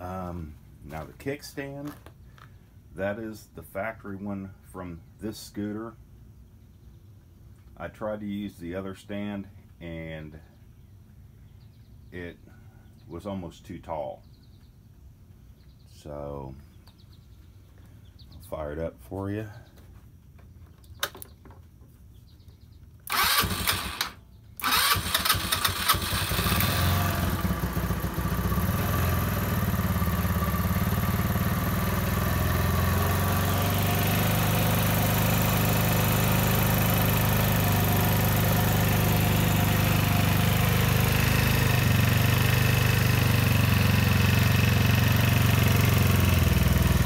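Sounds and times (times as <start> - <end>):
scooter engine starting and idling: 23.0 - 47.0.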